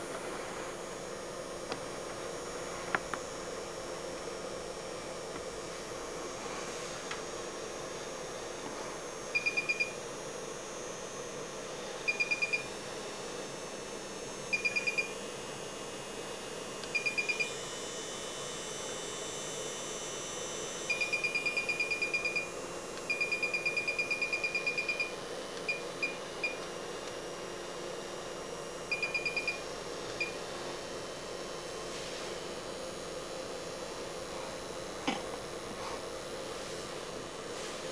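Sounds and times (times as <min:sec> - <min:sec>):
rapid high-pitched beeps: 0:09.4 - 0:10.0, 0:12.1 - 0:12.7, 0:28.9 - 0:29.6.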